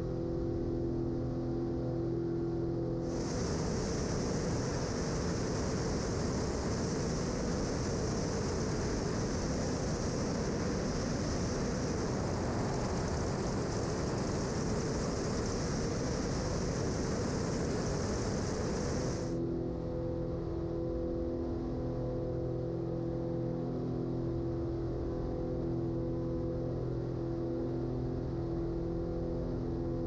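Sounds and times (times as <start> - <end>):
aircraft engine: 0.0 - 30.0
airflow rushing over camera: 3.1 - 19.4.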